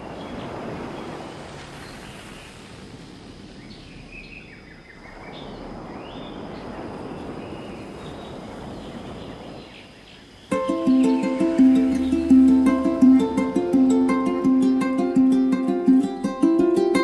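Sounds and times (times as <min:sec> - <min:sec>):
steady rushing noise: 0:00.0 - 0:17.0
bird chirps: 0:03.6 - 0:14.5.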